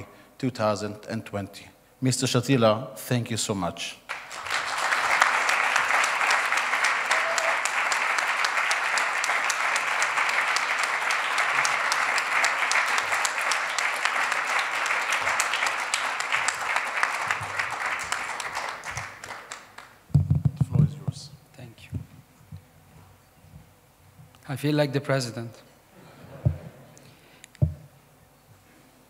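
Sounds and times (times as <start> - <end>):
audience applauding: 4.1 - 20.1.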